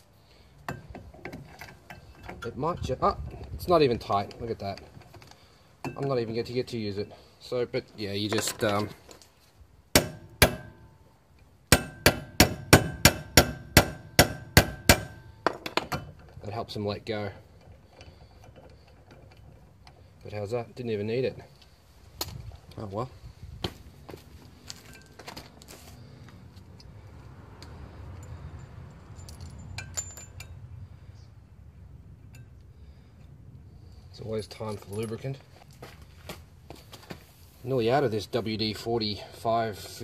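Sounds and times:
hammer striking metal: 0:10.0 - 0:11.0, 0:11.7 - 0:15.6
small metal parts clinking: 0:28.2 - 0:30.6.

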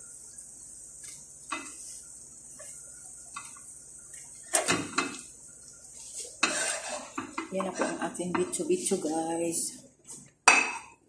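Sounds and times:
oil sizzling and popping: 0:00.0 - 0:09.0
kitchenware clattering: 0:04.5 - 0:05.2, 0:06.4 - 0:09.0, 0:10.4 - 0:11.0.

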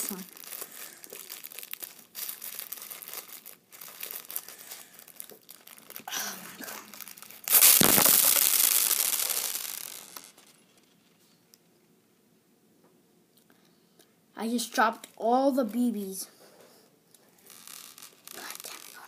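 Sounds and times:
pellets spilling and scattering: 0:00.0 - 0:10.6, 0:17.4 - 0:19.0
plastic bag crinkling: 0:00.0 - 0:10.9, 0:17.4 - 0:19.0.

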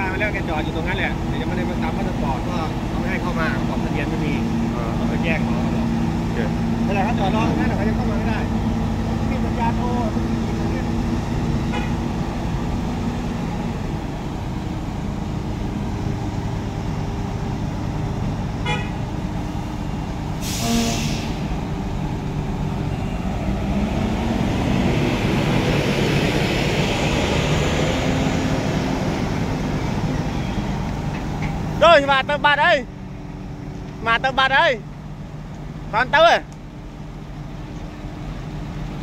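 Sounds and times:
diesel truck engine: 0:00.0 - 0:39.0
air brakes hissing: 0:20.4 - 0:21.6.

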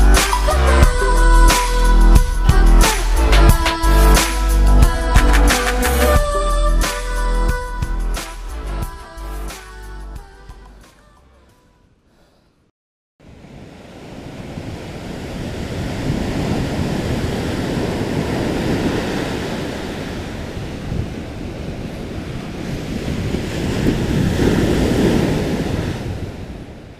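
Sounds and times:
ocean surf on sandy beach: 0:13.2 - 0:26.9
wind buffeting microphone: 0:14.0 - 0:26.9.

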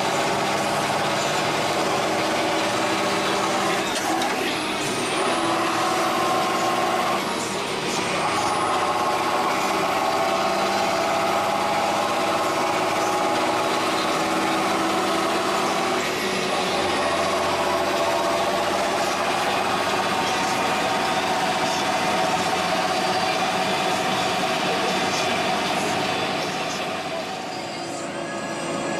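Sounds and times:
tractor engine drone from cab: 0:00.0 - 0:28.9.

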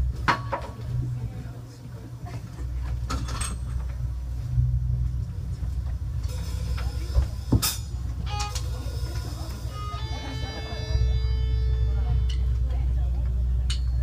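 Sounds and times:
amplifier hum: 0:00.0 - 0:14.0
electric guitar notes: 0:07.8 - 0:13.5.

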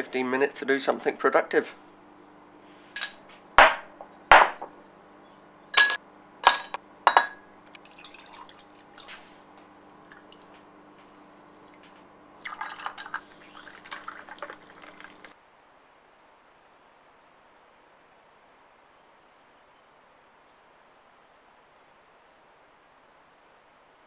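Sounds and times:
drink pouring into glasses: 0:07.6 - 0:09.3, 0:10.0 - 0:15.4
glass tumblers clinking: 0:12.4 - 0:15.3.

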